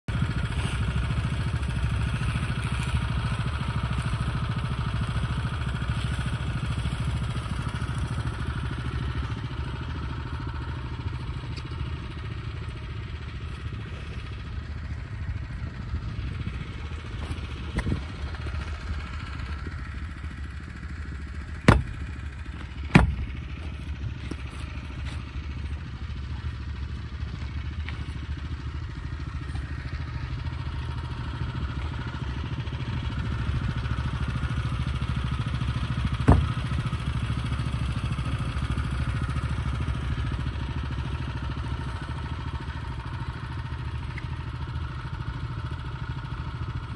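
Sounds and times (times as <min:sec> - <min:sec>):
small engine running: 0:00.1 - 0:46.9
sharp knocks: 0:21.6 - 0:22.0, 0:22.9 - 0:23.3, 0:36.2 - 0:36.6.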